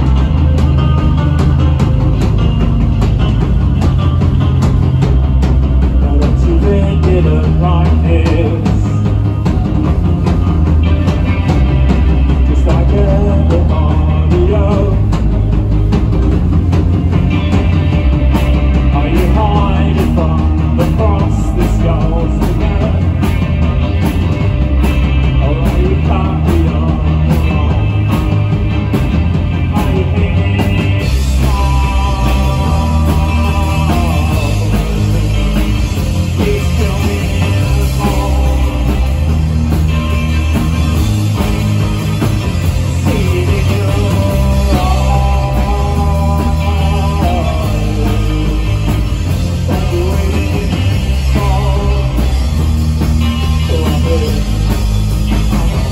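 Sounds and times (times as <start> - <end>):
bass guitar: 0.0 - 55.9
drums: 0.0 - 55.9
electric guitars: 0.0 - 55.9
man singing: 5.9 - 9.4, 12.1 - 15.5, 18.7 - 23.7, 25.0 - 28.7, 29.5 - 39.4, 42.7 - 54.9.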